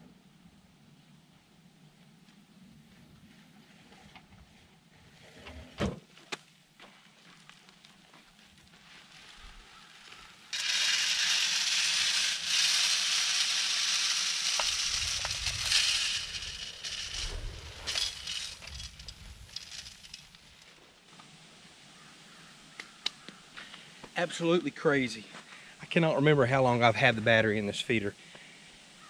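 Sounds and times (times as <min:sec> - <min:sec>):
corn kernels pouring: 0:10.1 - 0:20.7.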